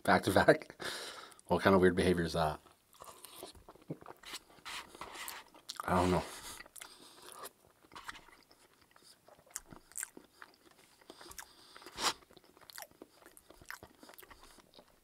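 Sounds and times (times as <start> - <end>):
chewing and mouth sounds: 2.6 - 4.4, 5.5 - 5.9, 6.5 - 15.0.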